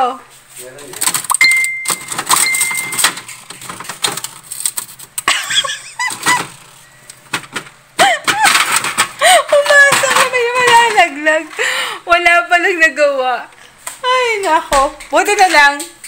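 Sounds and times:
plastic ice tray clattering: 1.9 - 11.6.

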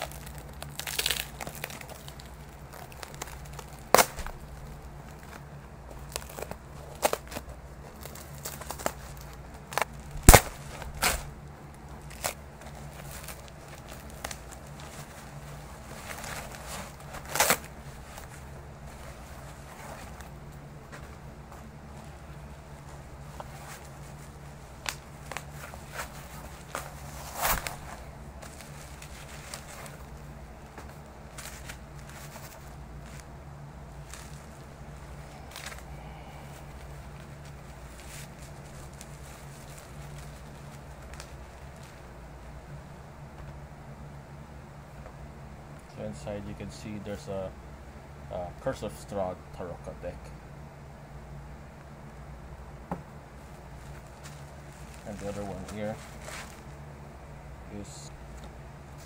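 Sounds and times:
plastic wrapping crinkling: 0.0 - 42.5, 53.4 - 56.8
steady low hum: 0.0 - 59.0.

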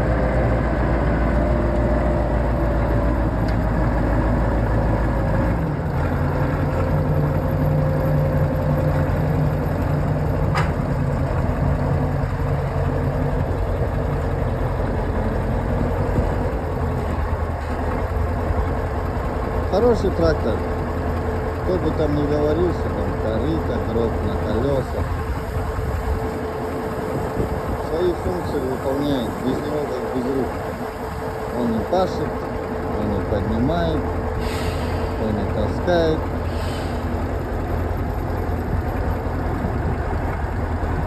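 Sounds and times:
tractor diesel engine running: 0.0 - 41.0.

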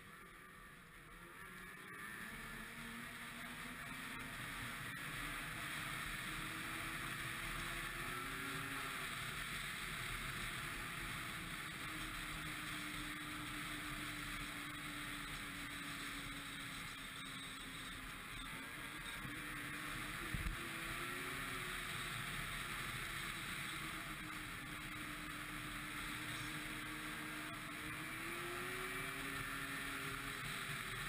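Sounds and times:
snowmobile engine running: 0.0 - 31.0.

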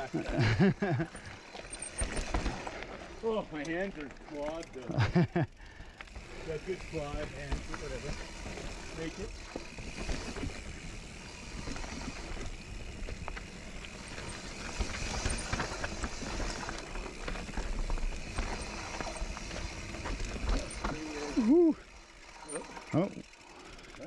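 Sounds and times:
chain and frame rattling: 0.0 - 5.3, 6.3 - 24.0
bike tyres crunching on dirt: 0.0 - 24.0.

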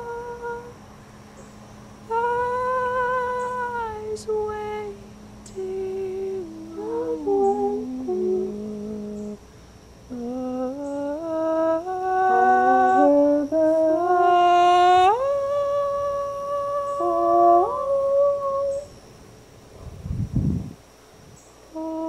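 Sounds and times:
person humming a melody: 0.0 - 0.8, 2.1 - 9.4, 10.1 - 19.0, 21.7 - 22.0.

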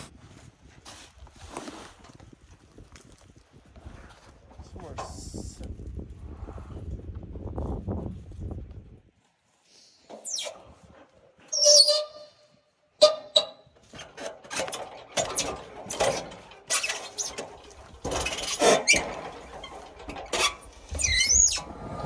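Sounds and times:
knocking and tearing rotten wood: 13.8 - 20.9.

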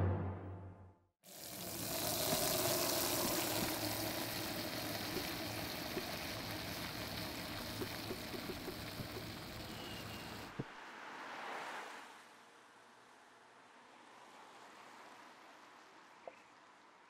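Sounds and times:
tap water running into bowl: 1.3 - 9.8
soap suds crackling: 1.4 - 10.4.

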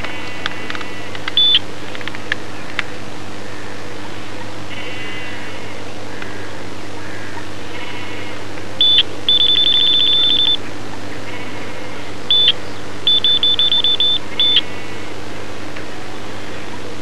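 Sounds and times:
bite alarm beeping: 1.4 - 1.6, 8.8 - 10.6, 12.3 - 14.8.

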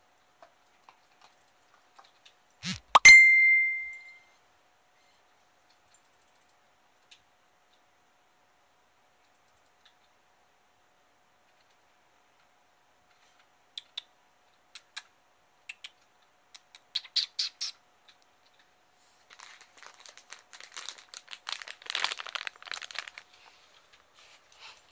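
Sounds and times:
dog crunching kibble: 19.3 - 23.3.

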